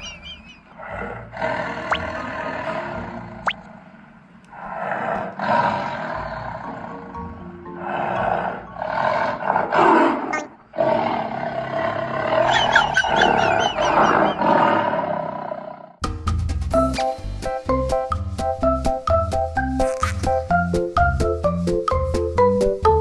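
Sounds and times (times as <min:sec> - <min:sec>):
background music: 0:05.6 - 0:09.8, 0:16.0 - 0:23.0.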